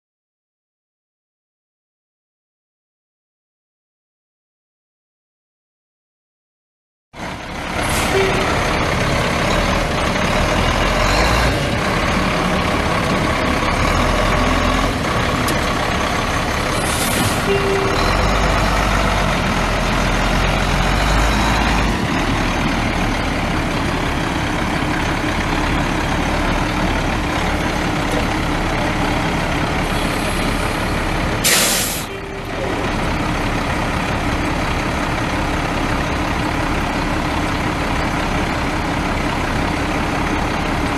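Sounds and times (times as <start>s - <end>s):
diesel truck engine running: 7.2s - 40.9s
air brake hiss: 31.4s - 32.1s.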